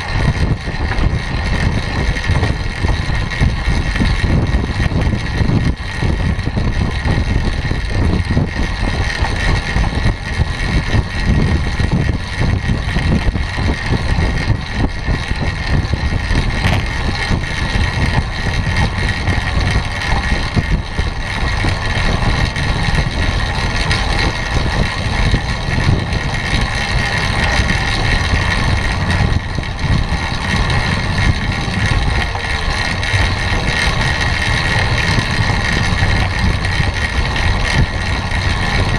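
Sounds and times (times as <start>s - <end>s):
tyres humming on track: 0.0s - 38.9s
wind buffeting microphone: 0.0s - 38.9s.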